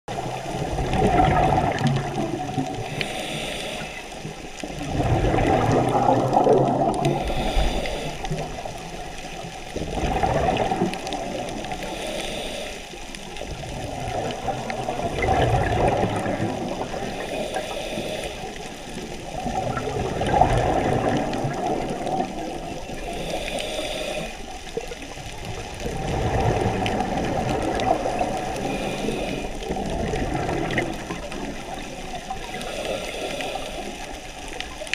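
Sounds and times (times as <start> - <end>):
exhaled bubbles rumbling: 0.1 - 12.2, 13.0 - 34.9
regulator inhale hiss: 2.8 - 4.8, 7.0 - 9.5, 11.6 - 13.2, 17.0 - 19.1, 22.8 - 24.8, 27.8 - 29.7, 32.2 - 34.4.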